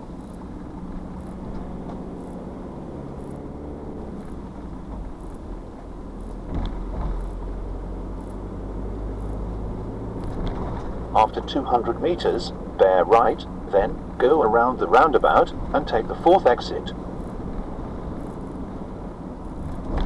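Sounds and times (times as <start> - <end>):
road noise: 0.0 - 20.0
vehicle engine hum: 0.0 - 20.0
vehicle bump: 3.1 - 7.6, 10.1 - 12.0, 19.5 - 20.0.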